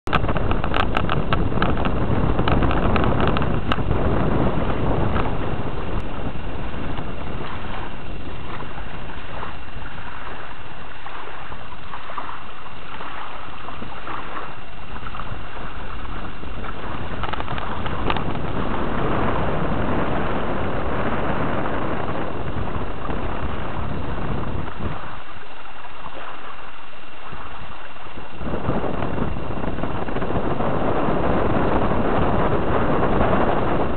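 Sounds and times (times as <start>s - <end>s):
wind buffeting microphone: 0.0s - 33.9s
faint clicks: 17.2s - 18.4s.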